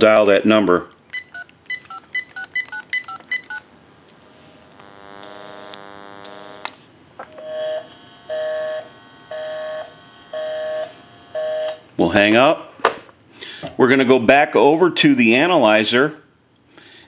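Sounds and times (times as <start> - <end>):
electrical hum on phone line: 1.0 - 13.6
touch-tone dialing beeps: 1.2 - 3.6.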